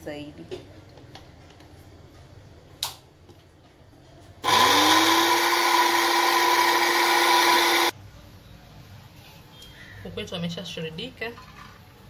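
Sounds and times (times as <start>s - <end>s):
electric food chopper motor whining: 4.4s - 7.9s.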